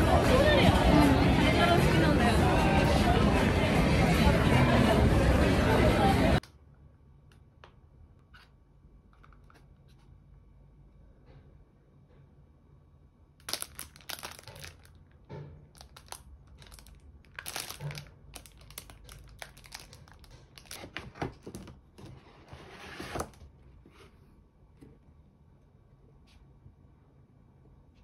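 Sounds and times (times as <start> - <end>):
plastic wrapping crinkling: 13.4 - 21.2.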